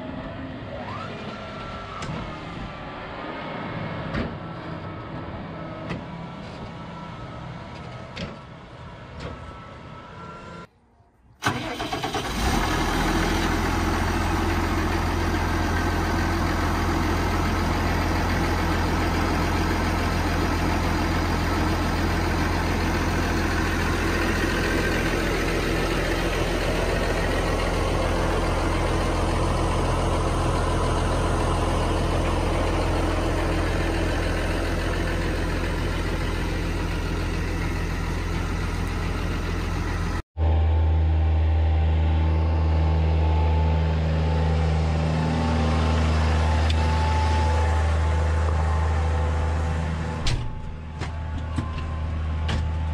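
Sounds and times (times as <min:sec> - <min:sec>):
tractor diesel engine idling: 0:11.4 - 0:52.9.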